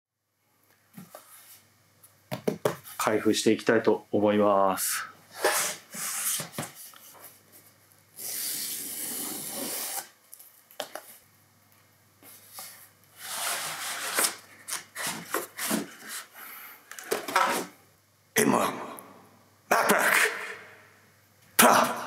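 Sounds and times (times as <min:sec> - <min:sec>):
cardboard tear strip ripping: 0:08.2 - 0:10.1
cardboard flaps rustling and scraping: 0:12.3 - 0:16.3.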